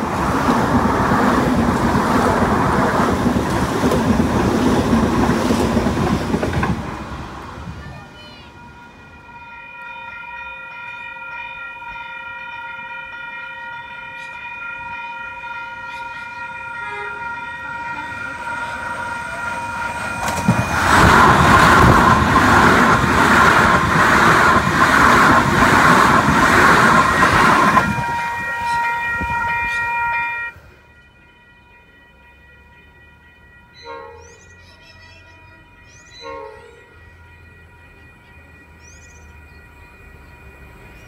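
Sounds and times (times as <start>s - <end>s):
train wheel beats: 0.0s - 7.2s, 14.8s - 30.5s
electric train passing: 0.0s - 41.0s
level crossing alarm ringing: 8.6s - 41.0s.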